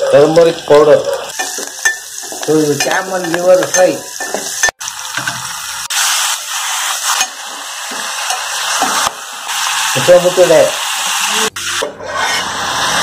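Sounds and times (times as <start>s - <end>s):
food sizzling in hot oil: 0.0s - 13.0s
spoon stirring in metal pot: 1.3s - 5.4s.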